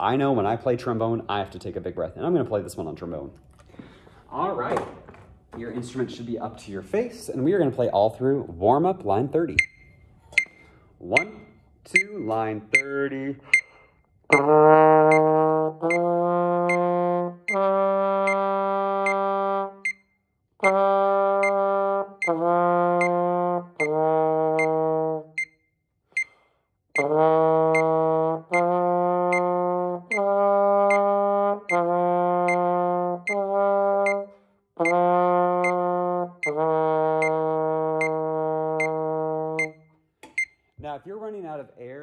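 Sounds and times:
metronome ticking: 9.5 - 14.5, 16.7 - 16.9, 23.0 - 23.2, 30.9 - 31.1, 32.5 - 32.7, 34.1 - 35.0, 35.6 - 35.8, 38.0 - 38.2, 38.8 - 39.0, 39.6 - 40.6
trombone playing: 14.3 - 19.9, 20.6 - 25.4, 27.0 - 39.8.

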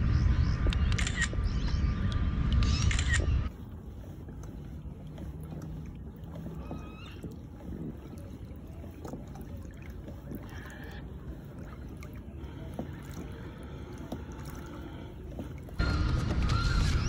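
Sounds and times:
fish splashing in water: 3.5 - 15.8.

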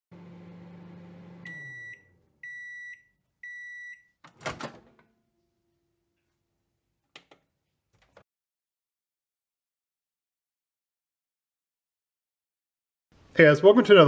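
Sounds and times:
microwave beeps: 0.6 - 4.2
microwave door popping open: 4.3 - 5.0.

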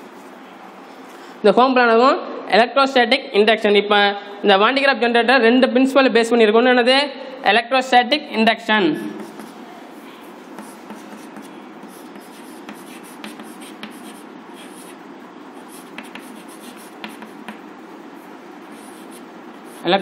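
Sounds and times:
chalk writing on blackboard: 9.0 - 20.0
chalk tapping on board: 9.1 - 9.6, 10.5 - 15.0, 15.7 - 17.7.

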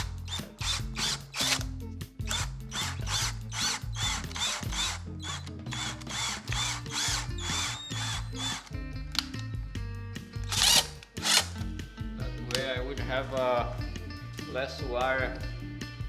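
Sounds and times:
cordless drill whirring: 0.0 - 1.7, 2.3 - 8.7, 10.5 - 11.6
background music: 0.0 - 16.0.

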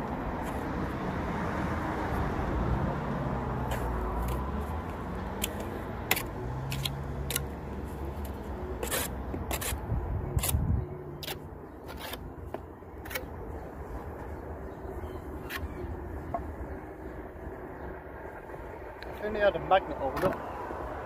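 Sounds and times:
trowel scraping and tapping brick: 8.2 - 9.8.

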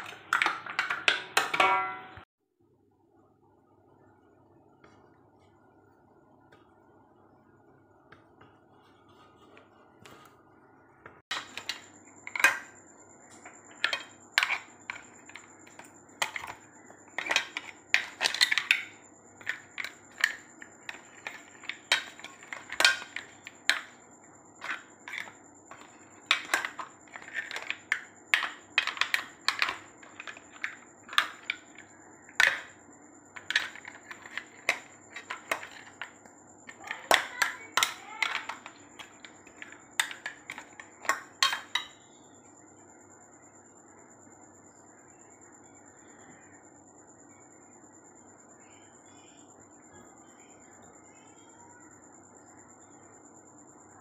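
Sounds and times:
mussel shells clinking: 13.7 - 24.0, 24.6 - 31.8, 33.4 - 36.1.

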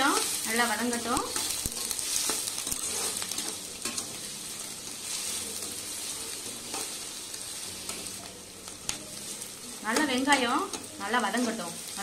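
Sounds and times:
metal spoon scraping pan: 0.0 - 4.2
onions sizzling in hot oil: 0.0 - 12.0.

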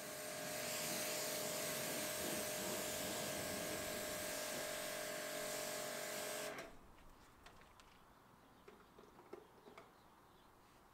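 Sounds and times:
water jet hissing: 0.0 - 6.6
pump motor whining: 0.0 - 6.7.

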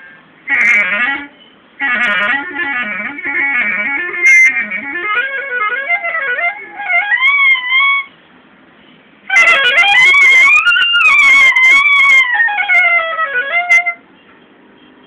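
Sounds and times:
solo clarinet: 0.0 - 8.1, 9.3 - 14.0.

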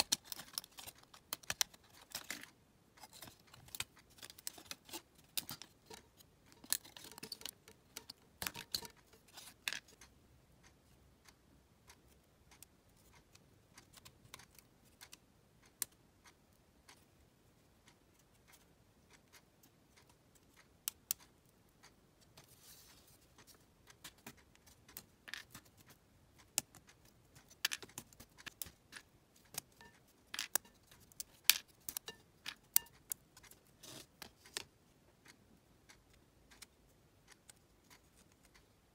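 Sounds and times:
wooden puzzle pieces clicking: 0.0 - 10.2, 23.4 - 38.6
soft rustle: 22.4 - 23.7.

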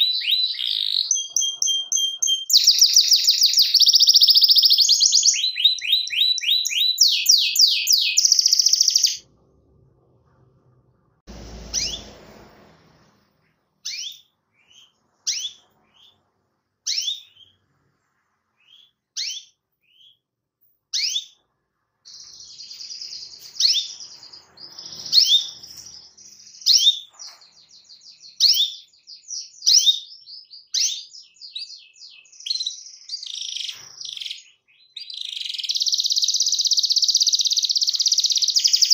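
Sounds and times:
sharp canary chirps: 0.0 - 9.3, 11.3 - 12.8, 13.6 - 38.9
canary rolling trill: 11.3 - 12.7.

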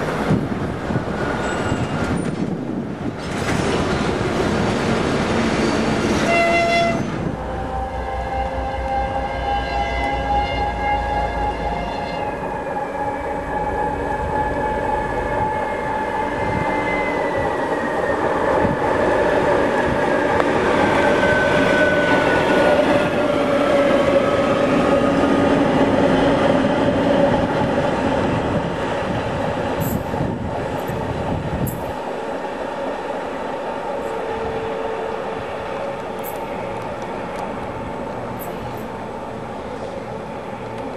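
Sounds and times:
diesel locomotive passing: 0.0 - 40.9
sharp high squeaks: 1.4 - 2.3.

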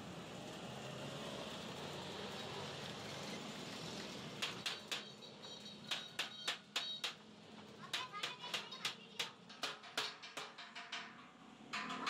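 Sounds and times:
workshop background noise: 3.1 - 12.0
sharp ringing metal knocks: 4.4 - 5.2, 5.8 - 7.2, 7.9 - 12.0.

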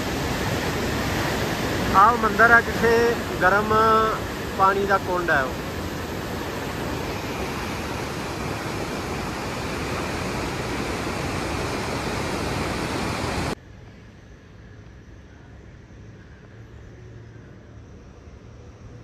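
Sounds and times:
white-water river rushing: 0.0 - 13.6
quiet steady background noise: 0.0 - 19.0.

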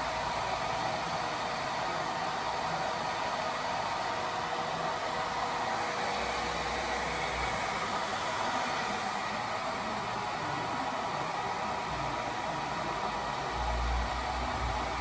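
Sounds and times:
hair dryer blowing air: 0.0 - 15.0.

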